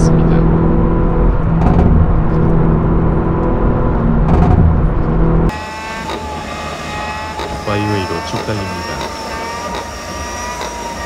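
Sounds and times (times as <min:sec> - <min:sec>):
exhaust popping crackles: 0:00.0 - 0:05.5
car engine at highway speed: 0:00.0 - 0:11.0.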